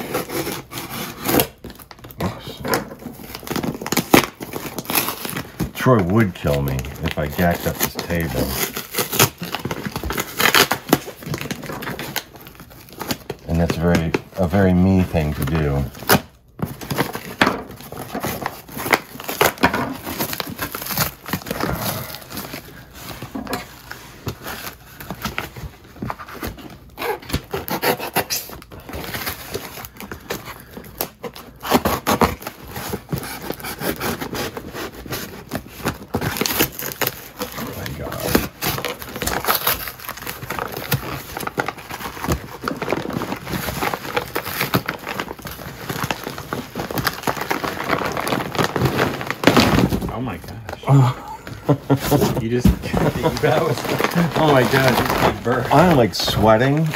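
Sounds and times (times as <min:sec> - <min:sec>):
knife cutting cardboard box: 0:00.0 - 0:01.9, 0:26.1 - 0:29.7, 0:31.2 - 0:45.3
tape and film ripping: 0:00.0 - 0:56.9.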